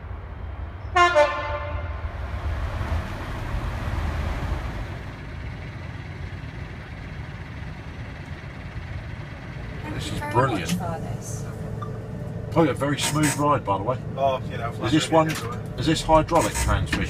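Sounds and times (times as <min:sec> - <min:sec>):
diesel railbus rumbling: 0:00.0 - 0:17.0
train horn two-note blast: 0:00.9 - 0:02.2.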